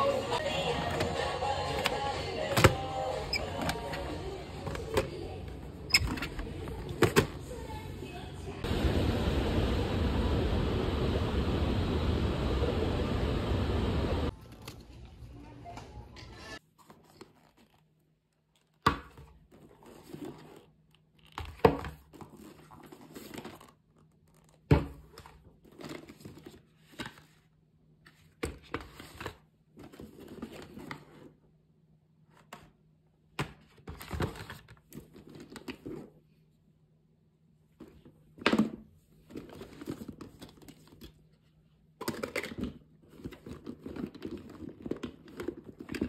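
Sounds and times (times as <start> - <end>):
faint steady hum: 4.0 - 14.4
loud rushing noise: 8.6 - 14.3
rustling and crinkling: 16.6 - 24.6, 39.0 - 41.8, 42.4 - 46.0.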